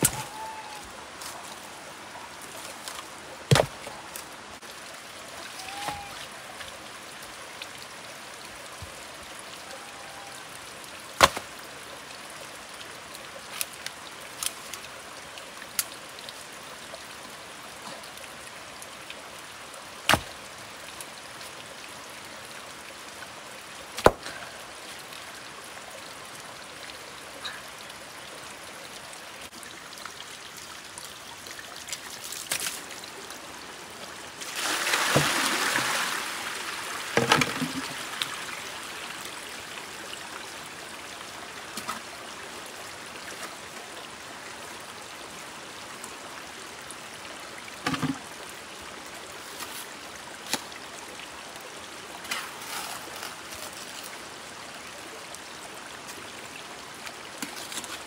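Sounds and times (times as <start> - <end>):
running water: 0.0 - 58.0.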